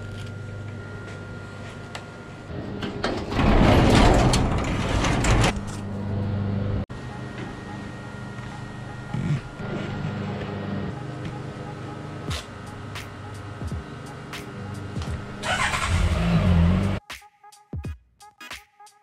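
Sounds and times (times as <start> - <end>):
garage door rattling open: 2.5 - 5.9.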